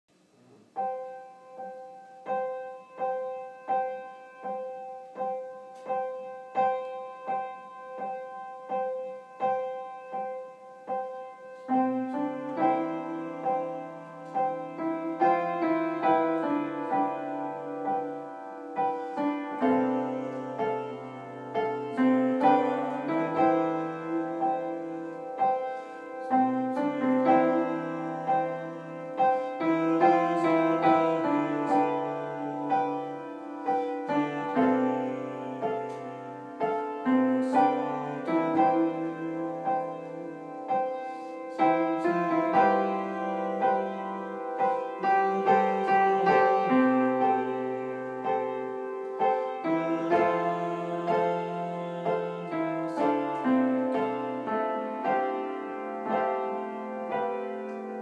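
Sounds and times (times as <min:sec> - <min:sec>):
solo piano: 0:00.1 - 0:58.0.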